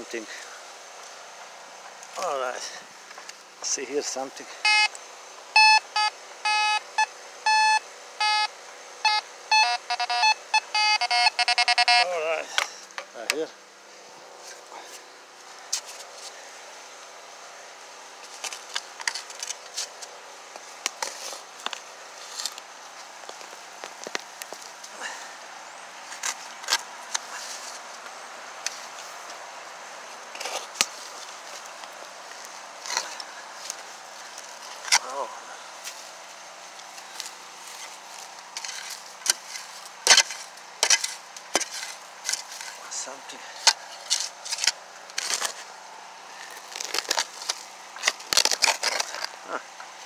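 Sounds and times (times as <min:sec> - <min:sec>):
shovel digging into sandy soil: 0:38.6 - 0:42.9.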